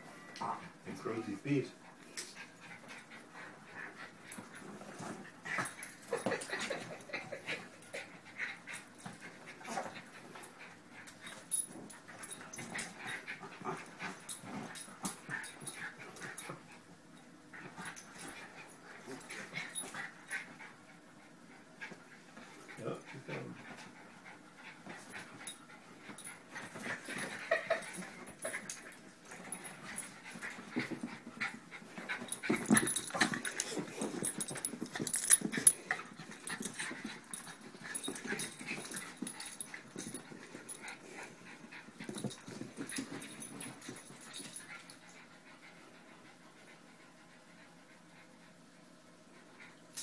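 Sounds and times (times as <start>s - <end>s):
dogs play-fight noises: 0.1s - 50.0s
dogs scuffling: 24.8s - 44.9s.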